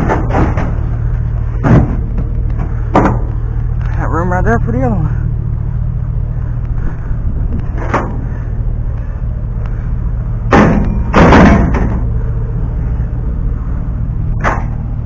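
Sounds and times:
metal panels banging in truck bed: 0:00.0 - 0:03.3, 0:07.8 - 0:08.3, 0:10.5 - 0:12.2, 0:14.4 - 0:14.8
low rumble: 0:00.0 - 0:15.0.

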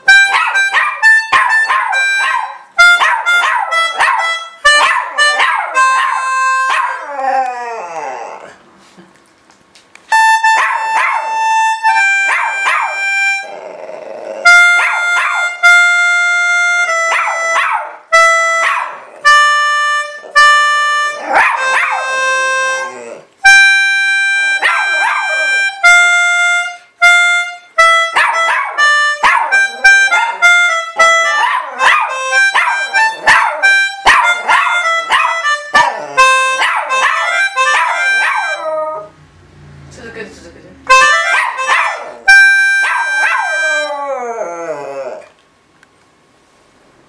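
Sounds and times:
dog howling: 0:06.7 - 0:08.6, 0:22.8 - 0:23.3, 0:31.4 - 0:36.3, 0:42.9 - 0:45.3
organ playing slow melody: 0:21.9 - 0:24.6.

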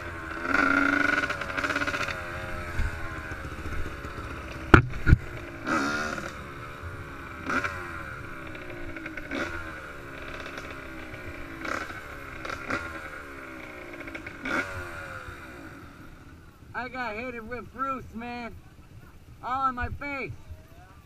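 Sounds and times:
dirt bike engine with throttle blips: 0:00.0 - 0:21.0
sharp knocks: 0:04.7 - 0:05.3.

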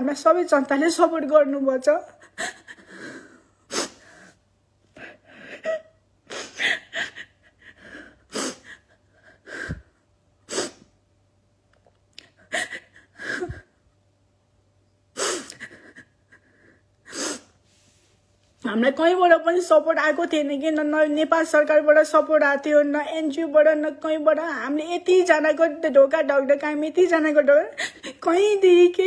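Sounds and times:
woman sobbing: 0:01.8 - 0:10.7, 0:12.2 - 0:13.8, 0:15.2 - 0:17.5, 0:26.9 - 0:29.0.

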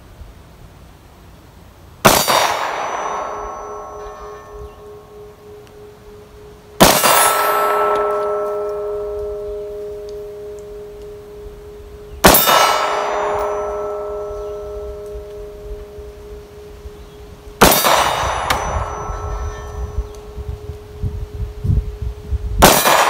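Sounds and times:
pistol shots: 0:02.0 - 0:05.0, 0:06.8 - 0:10.8, 0:12.2 - 0:15.6, 0:17.6 - 0:19.2, 0:22.6 - 0:23.0
steel target ringing: 0:02.0 - 0:21.9, 0:22.6 - 0:23.0.

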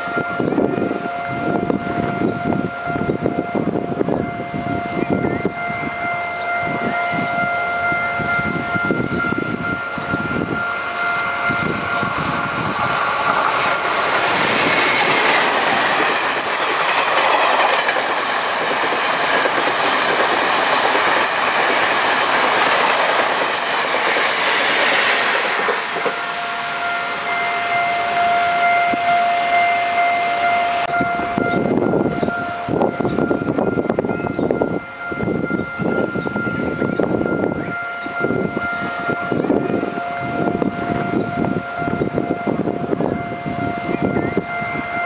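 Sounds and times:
level-crossing warning bell: 0:00.0 - 0:45.0
wheels clacking over rail joints: 0:10.8 - 0:26.4.

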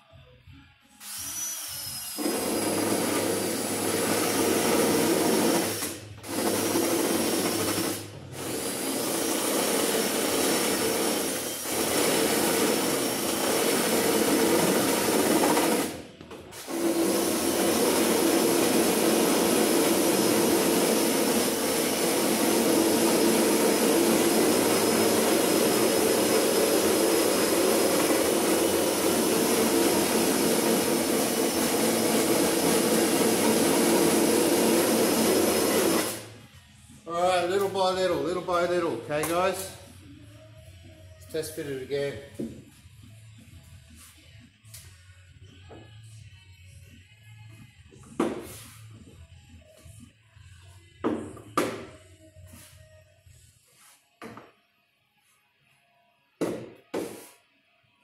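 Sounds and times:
power tool whining while cutting: 0:16.6 - 0:36.3.

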